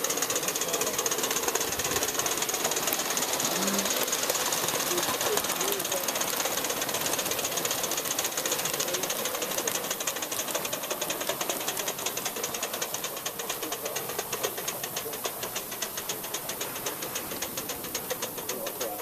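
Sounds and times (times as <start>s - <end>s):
model steam locomotive chuffing: 0.0s - 19.0s
steam hiss: 0.0s - 19.0s.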